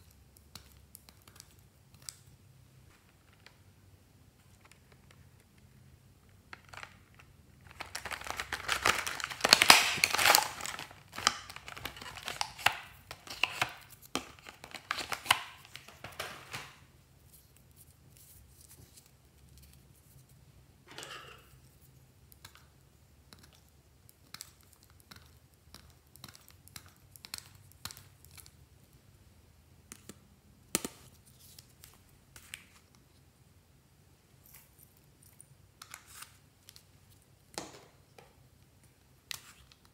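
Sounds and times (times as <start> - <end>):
plastic packaging crinkling: 6.6 - 16.8.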